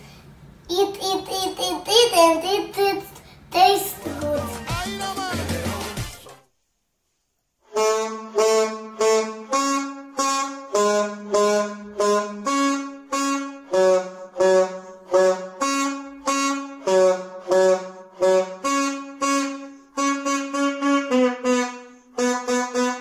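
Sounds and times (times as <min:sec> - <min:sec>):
solo saxophone tune: 0:07.6 - 0:23.0.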